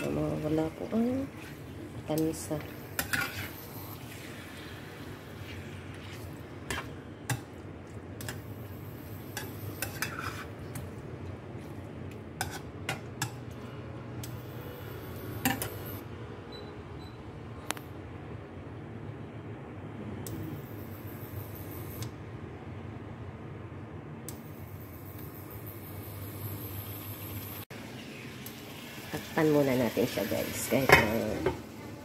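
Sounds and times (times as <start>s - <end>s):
food sizzling in a wok: 0.0s - 6.9s, 8.3s - 10.6s, 24.8s - 32.0s
metal spoon scraping a pan: 2.8s - 3.9s, 5.4s - 7.0s, 9.0s - 10.8s, 12.4s - 13.4s.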